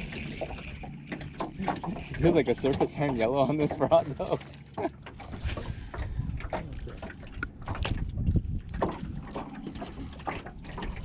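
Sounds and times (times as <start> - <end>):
wind rumbling on microphone: 5.2 - 10.2.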